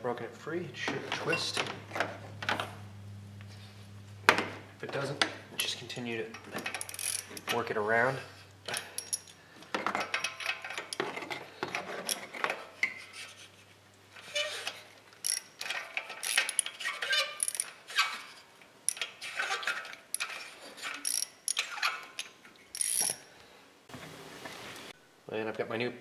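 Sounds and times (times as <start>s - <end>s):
ratchet wrench clicking: 6.6s - 7.6s, 15.2s - 15.6s, 17.4s - 17.8s, 21.0s - 21.6s, 22.8s - 23.2s.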